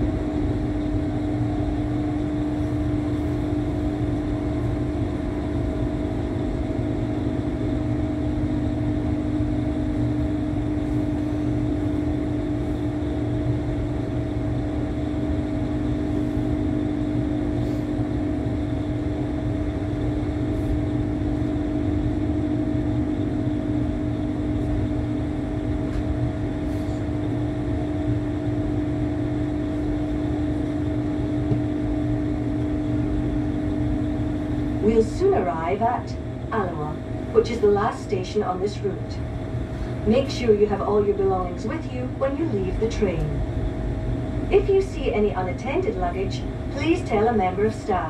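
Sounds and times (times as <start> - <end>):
train carriage rumble: 0.0 - 6.8
constant hum: 0.0 - 48.0.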